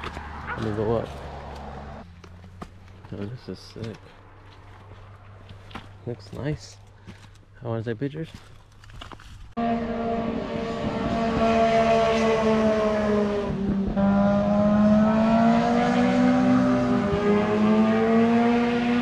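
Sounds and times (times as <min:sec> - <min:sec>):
vehicle engine revving high: 0:09.6 - 0:19.0.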